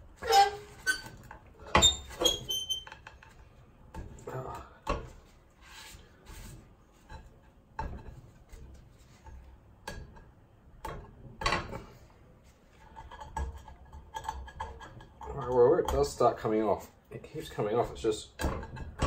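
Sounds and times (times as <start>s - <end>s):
rubbing and scraping on pan: 5.0s - 9.5s.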